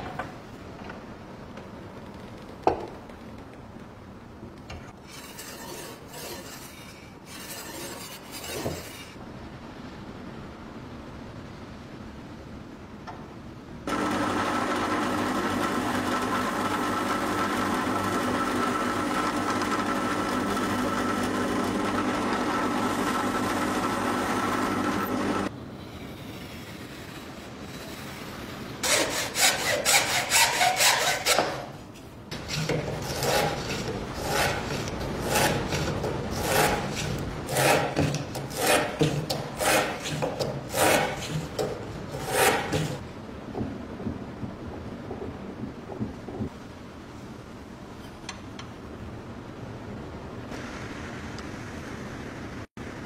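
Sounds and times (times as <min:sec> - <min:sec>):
hand plane shaving wood: 0:28.8 - 0:31.6, 0:32.4 - 0:43.0.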